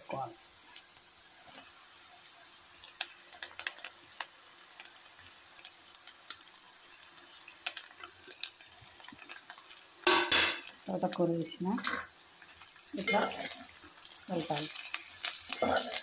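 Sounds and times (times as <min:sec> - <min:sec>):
oil sizzling in a pan: 0:00.0 - 0:16.0
leaves crackling dropped in oil: 0:05.6 - 0:16.0.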